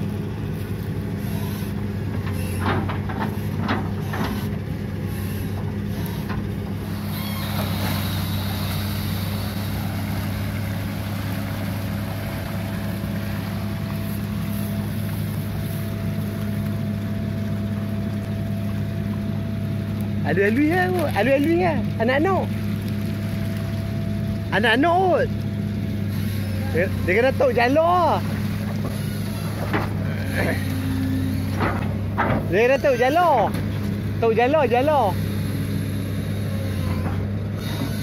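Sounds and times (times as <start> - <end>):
water sloshing and pouring: 0.0 - 26.4
diesel engine running: 0.0 - 38.0.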